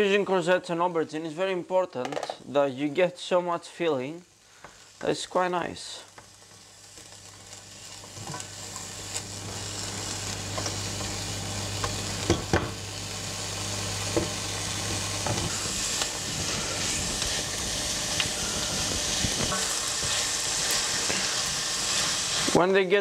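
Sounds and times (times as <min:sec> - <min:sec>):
onions sizzling in a frying pan: 0:03.9 - 0:23.0
low hum: 0:08.4 - 0:20.9.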